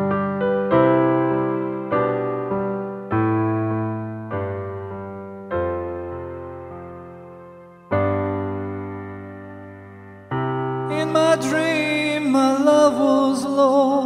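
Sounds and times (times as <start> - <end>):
piano playing slow chords: 0.0 - 14.0.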